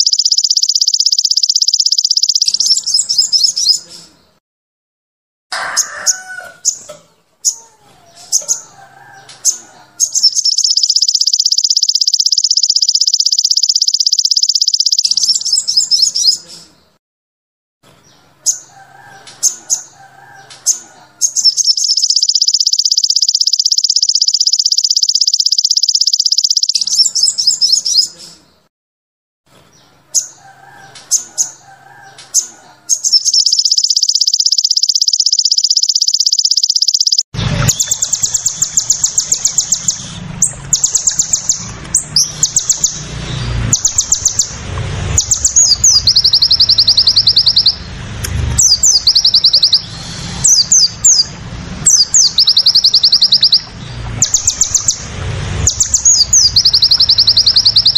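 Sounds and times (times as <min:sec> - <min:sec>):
bird high buzzing trills: 0:00.0 - 0:03.8, 0:08.3 - 0:16.4, 0:18.4 - 0:28.1, 0:30.2 - 0:57.9
faint lower warbling calls: 0:00.0 - 0:03.8, 0:09.5 - 0:16.4, 0:20.7 - 0:28.1, 0:32.9 - 0:48.0, 0:48.6 - 0:57.9
short sharp bird chirps: 0:00.0 - 0:04.2, 0:09.4 - 0:16.7, 0:20.4 - 0:28.4, 0:32.2 - 0:44.5, 0:48.6 - 0:51.3.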